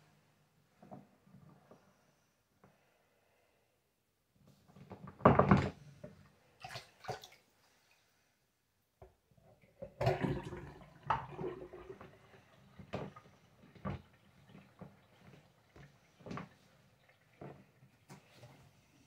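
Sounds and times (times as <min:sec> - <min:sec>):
water splashing in sink: 0:06.6 - 0:07.5, 0:09.6 - 0:18.5.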